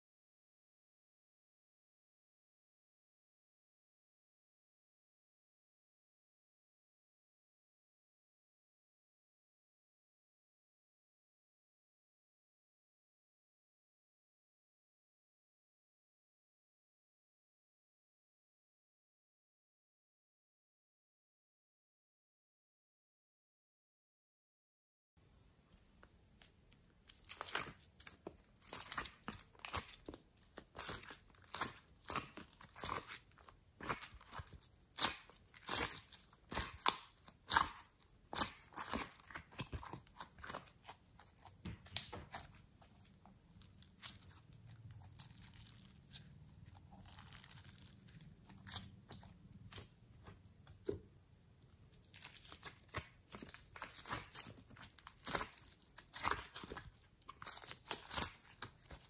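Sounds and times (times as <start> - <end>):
slime crackling and clicking: 27.1 - 42.6, 52.0 - 59.0.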